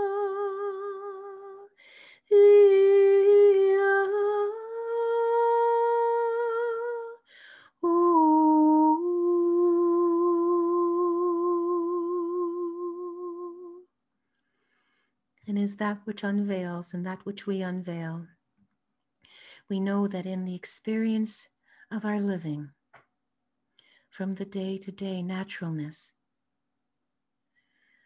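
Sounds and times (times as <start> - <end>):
woman breathing in: 1.8 - 2.3, 14.4 - 15.2, 27.5 - 28.0.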